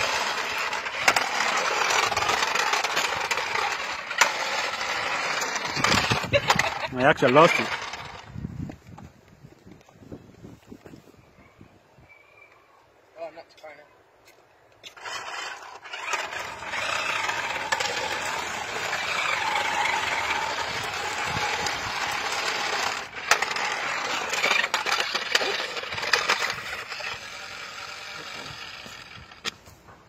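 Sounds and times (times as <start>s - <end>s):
electric motor whine: 0.0s - 8.2s, 15.0s - 29.6s
toy car clacking: 0.0s - 8.3s, 14.8s - 29.7s
plastic wheels scraping concrete: 0.0s - 9.1s, 14.8s - 30.0s.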